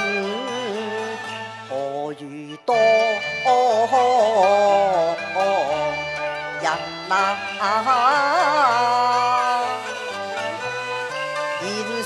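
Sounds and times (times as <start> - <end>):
instrumental accompaniment: 0.0 - 12.0
woman singing opera: 6.6 - 9.7, 11.6 - 12.0.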